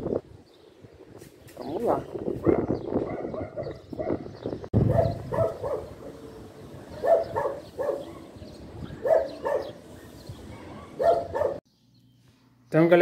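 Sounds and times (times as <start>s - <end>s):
dog barking: 2.4s - 4.2s, 4.8s - 6.2s, 6.9s - 8.4s, 9.0s - 9.8s, 10.5s - 11.6s.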